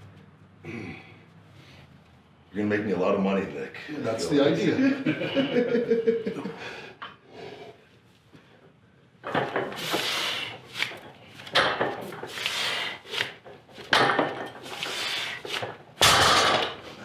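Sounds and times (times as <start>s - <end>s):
heavy forceful breathing: 6.4s - 8.5s, 9.6s - 11.5s, 12.2s - 13.4s, 14.7s - 15.6s.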